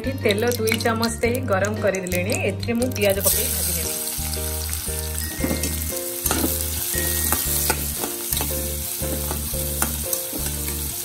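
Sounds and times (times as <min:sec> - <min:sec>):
onions sizzling in hot oil: 0:03.2 - 0:11.0.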